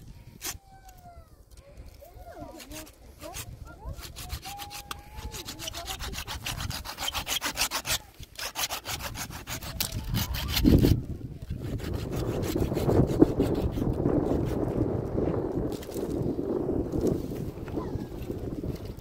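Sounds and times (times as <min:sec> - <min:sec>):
rough scraping rubbing: 0:02.3 - 0:19.0
hand saw cutting wood: 0:02.4 - 0:14.8.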